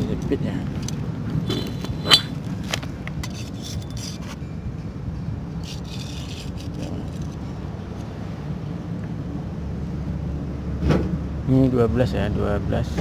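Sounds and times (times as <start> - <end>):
caliper scraping on metal: 1.5 - 4.4, 5.6 - 8.1.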